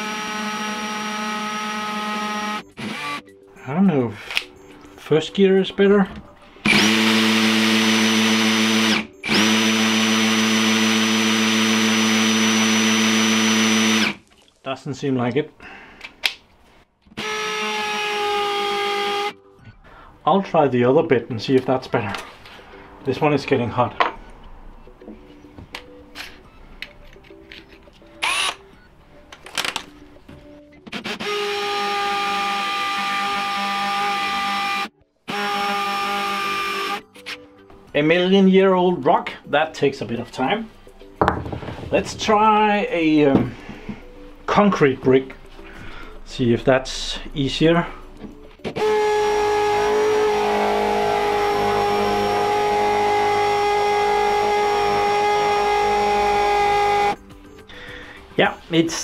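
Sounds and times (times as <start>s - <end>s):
hammer drill boring into stone: 6.6s - 14.2s, 28.2s - 28.6s.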